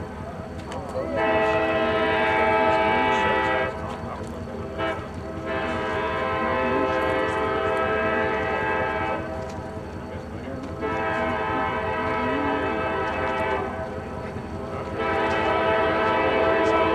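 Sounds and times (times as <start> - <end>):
locomotive air horn blasts: 1.1 - 3.8, 4.7 - 9.6, 10.7 - 13.9, 14.8 - 16.9.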